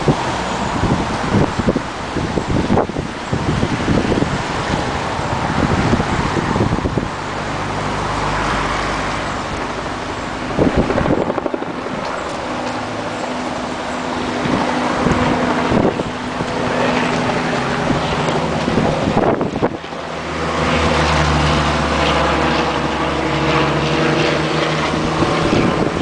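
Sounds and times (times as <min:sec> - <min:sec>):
river rushing: 0:00.0 - 0:26.0
wind buffeting microphone: 0:00.0 - 0:26.0.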